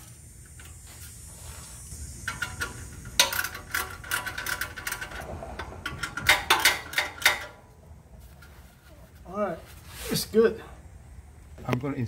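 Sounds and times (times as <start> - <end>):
ratchet wrench clicking: 2.0 - 7.6.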